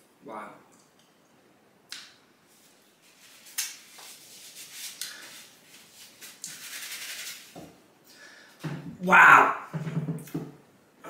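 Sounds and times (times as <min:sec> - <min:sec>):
paper napkin rustling: 0:02.5 - 0:07.6.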